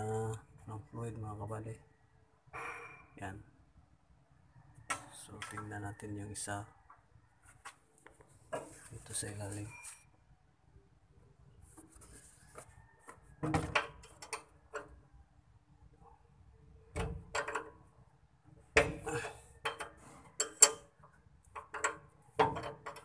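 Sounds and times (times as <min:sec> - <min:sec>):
wrench clanking on metal: 0:18.8 - 0:23.0.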